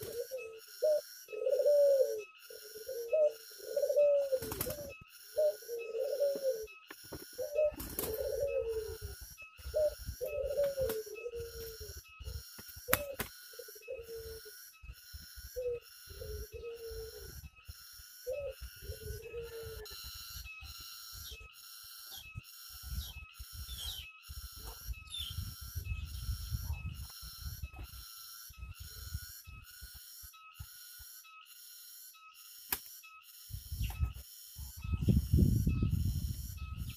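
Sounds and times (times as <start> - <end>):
doves cooing: 0.0 - 29.3.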